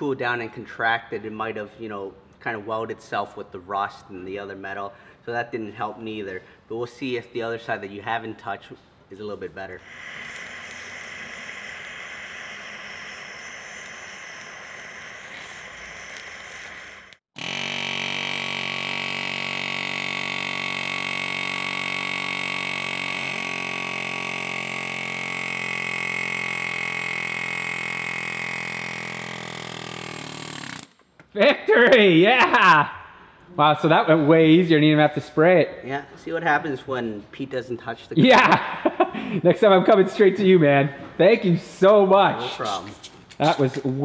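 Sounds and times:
gas torch hissing: 9.8s - 17.3s
pneumatic air hammer buzzing: 9.8s - 31.2s.

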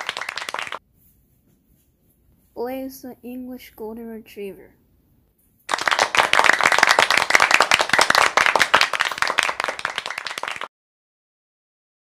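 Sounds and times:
group of people applauding: 0.0s - 0.8s, 5.7s - 10.7s.

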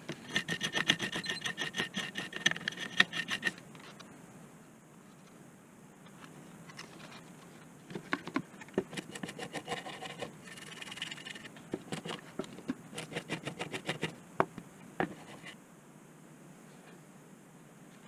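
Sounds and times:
toothbrush scrubbing circuit board: 0.2s - 3.6s, 12.9s - 14.2s, 15.1s - 15.6s.

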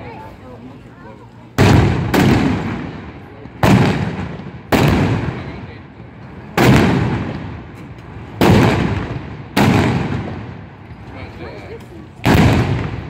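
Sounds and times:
gunshots with rolling echo: 1.6s - 5.8s, 6.6s - 10.8s, 12.2s - 13.0s.

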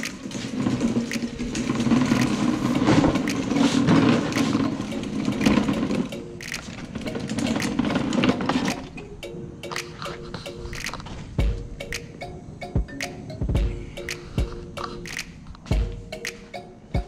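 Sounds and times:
plastic clattering and scraping: 0.0s - 9.0s
wheels rolling on concrete: 0.0s - 17.0s.

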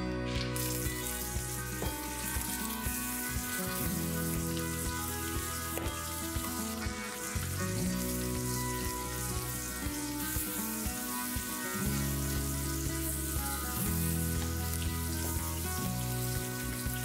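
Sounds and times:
background music with beat: 0.0s - 17.0s
chicken sizzling in a pan: 0.2s - 17.0s.

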